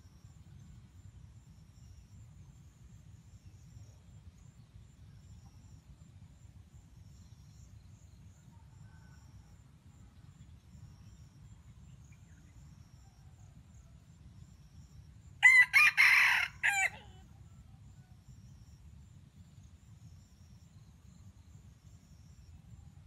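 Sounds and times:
rooster crowing: 15.4 - 17.2.

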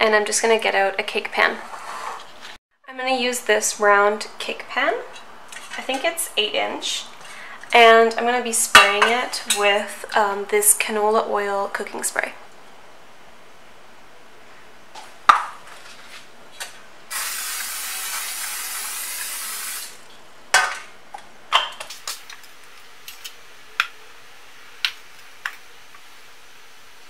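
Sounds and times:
cooking spray hissing: 17.1 - 20.0, 21.8 - 27.0.

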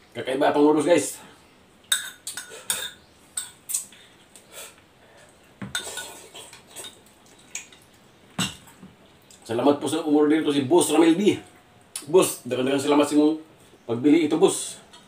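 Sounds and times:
fork clinking and scraping a bowl: 1.9 - 3.6, 5.7 - 7.0.

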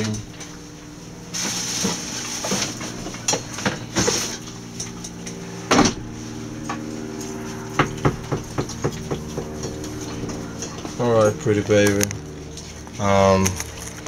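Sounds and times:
low mechanical hum: 0.0 - 14.0
knocks and clatters: 1.8 - 11.0.

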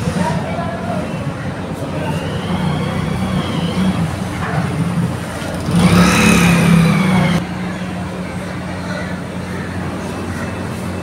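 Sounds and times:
vehicle passing close by: 2.2 - 7.4.

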